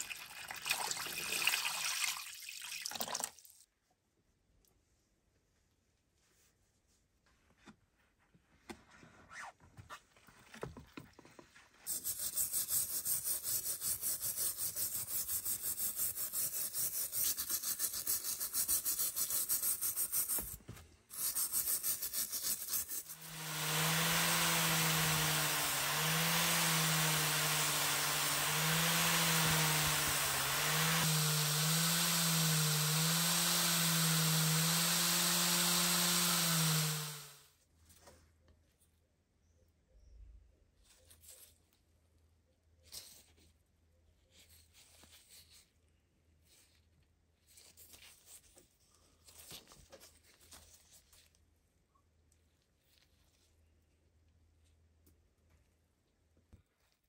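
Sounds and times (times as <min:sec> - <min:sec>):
metal scraper scraping rust: 0:11.9 - 0:33.2
electric drill wire wheel whirring: 0:23.0 - 0:37.4.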